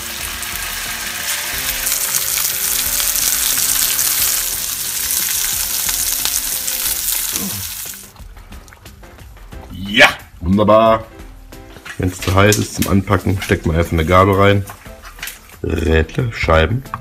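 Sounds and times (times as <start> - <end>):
sausages sizzling in a frying pan: 0.0 - 8.2.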